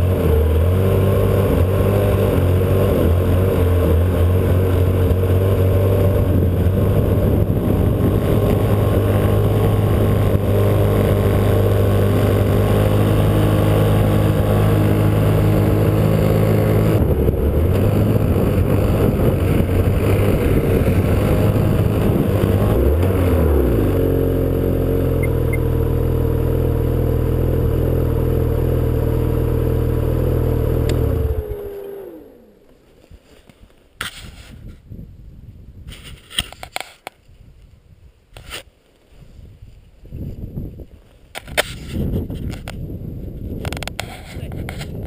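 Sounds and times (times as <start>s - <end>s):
snowmobile engine running: 0.0s - 32.7s.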